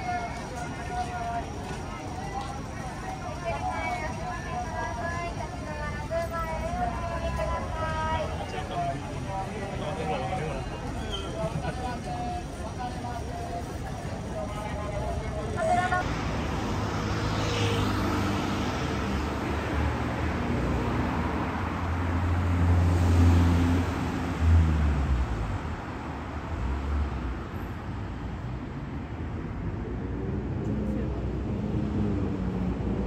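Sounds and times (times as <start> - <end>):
road traffic: 0.0 - 33.0
vehicle passing: 15.6 - 25.8.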